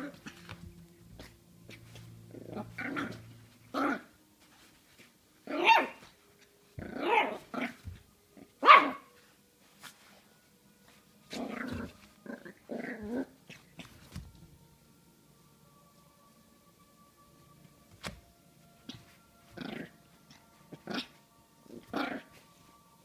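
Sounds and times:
puppy growling and yapping: 2.3s - 4.1s, 5.5s - 6.0s, 6.8s - 9.0s, 11.3s - 14.0s, 18.9s - 20.0s, 20.7s - 22.4s.

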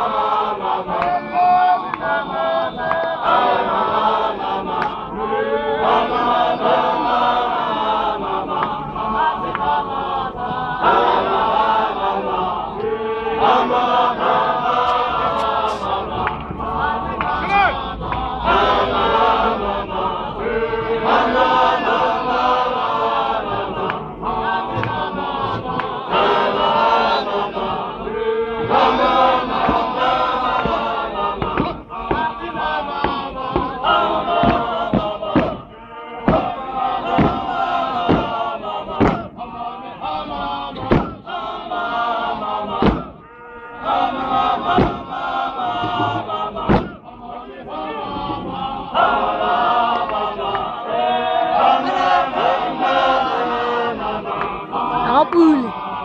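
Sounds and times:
men chanting and singing: 0.0s - 56.0s
feet stomping on dirt: 39.0s - 39.3s.

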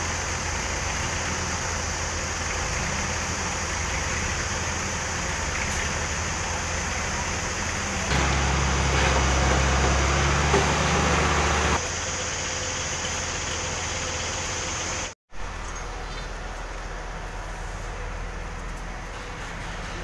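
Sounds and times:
hiss of site noise: 0.0s - 15.2s
diesel engine running: 0.0s - 20.0s.

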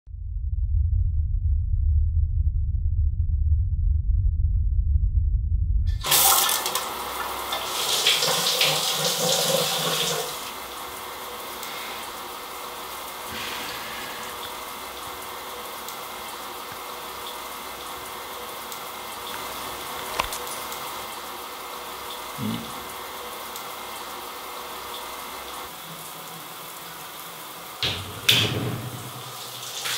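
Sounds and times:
low rumble: 0.1s - 6.0s
shower water hissing: 5.9s - 29.9s.

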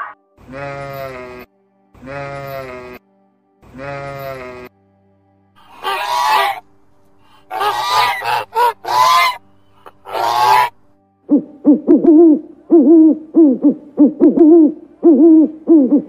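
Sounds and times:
geese honking: 5.6s - 6.6s, 7.3s - 10.8s
owl hooting: 5.6s - 6.6s, 7.3s - 16.0s.

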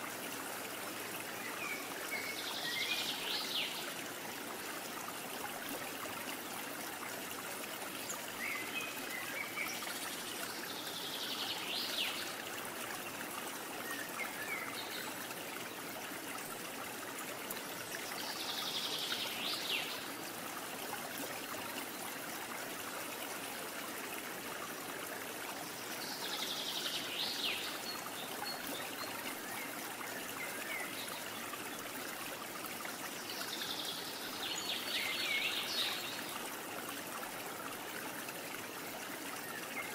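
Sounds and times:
stream flowing: 0.0s - 39.9s.

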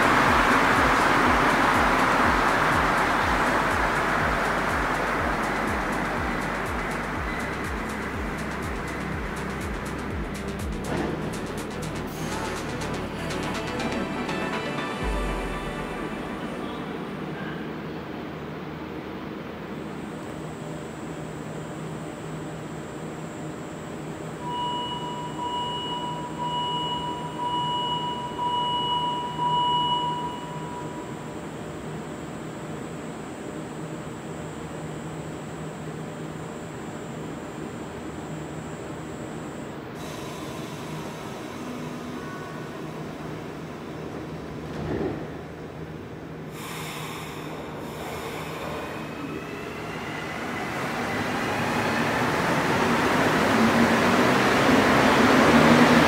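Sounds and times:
traction motor whine rising: 0.0s - 18.4s, 47.9s - 56.0s
train hum: 0.0s - 56.0s.

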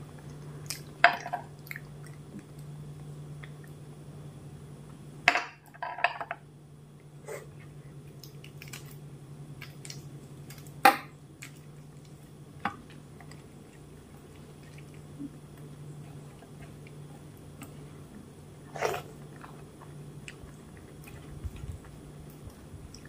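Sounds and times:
low steady hum: 0.0s - 23.0s
wet squishing of food: 0.2s - 3.8s, 8.0s - 23.0s.

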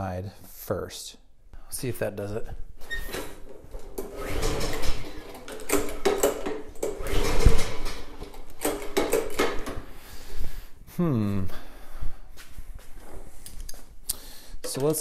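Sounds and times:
mower engine pull-start cranking: 2.9s - 9.8s.

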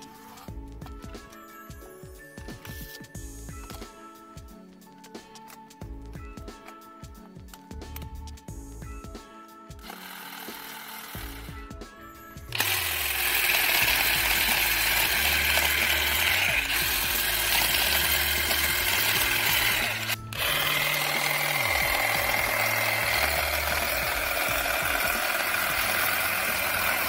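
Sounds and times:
background music with bass line: 0.0s - 9.9s, 11.0s - 27.0s
cordless shrub shears buzzing: 9.8s - 11.6s, 12.5s - 27.0s.

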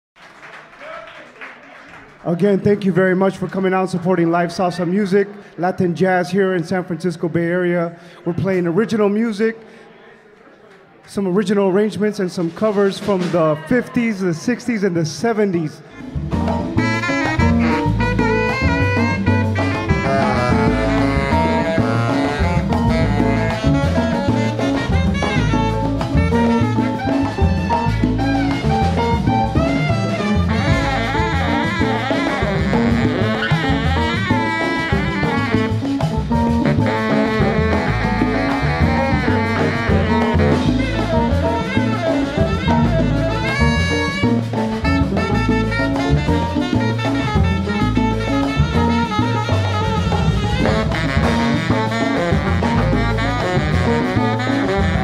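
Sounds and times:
latin percussion and drum kit: 12.2s - 55.0s
horn section playing: 16.2s - 55.0s.

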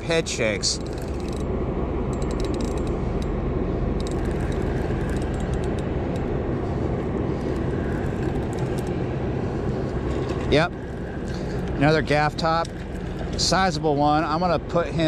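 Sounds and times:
low diesel engine drone: 0.0s - 15.0s
fishing reel clicking: 0.8s - 1.4s.

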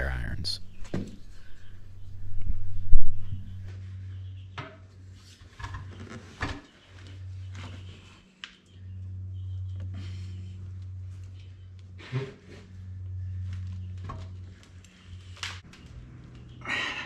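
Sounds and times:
steady low hum: 0.0s - 5.1s, 7.0s - 17.0s.

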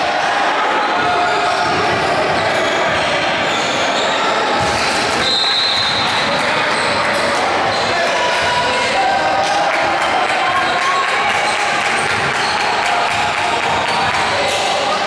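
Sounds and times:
chatter of voices: 0.0s - 15.0s.

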